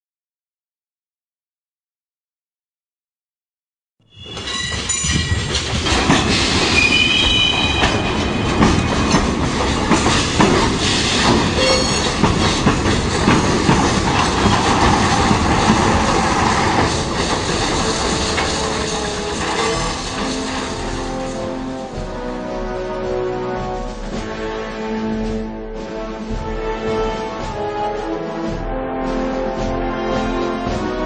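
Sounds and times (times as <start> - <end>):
high wheel squeals: 4.1 - 5.7, 6.3 - 9.2, 11.0 - 12.3
rail clatter: 4.1 - 25.5
train rumbling on rails: 4.1 - 31.0.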